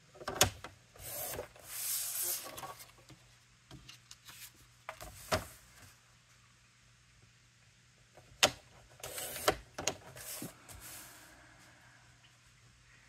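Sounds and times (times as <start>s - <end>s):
paper sliding and rubbing: 1.0s - 2.9s, 9.0s - 11.4s.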